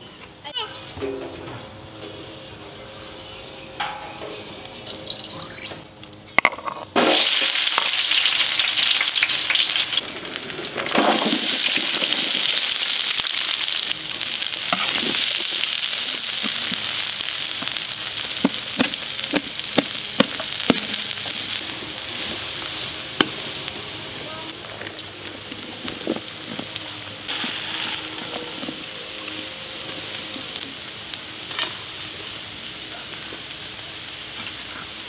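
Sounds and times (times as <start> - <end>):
onions sizzling in hot oil: 6.9 - 35.0
spatula scraping a wok: 27.3 - 30.6.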